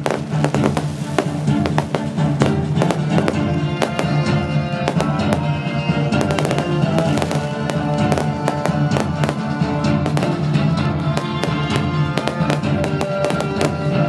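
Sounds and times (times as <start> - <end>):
fireworks bangs and crackles: 0.0 - 14.0
loud music from sound system: 0.0 - 14.0.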